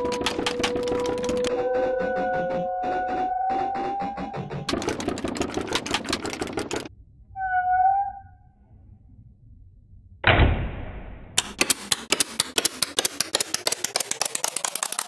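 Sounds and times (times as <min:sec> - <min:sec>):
rapid sharp clicks: 0:00.0 - 0:01.7, 0:03.8 - 0:06.9, 0:11.4 - 0:15.0.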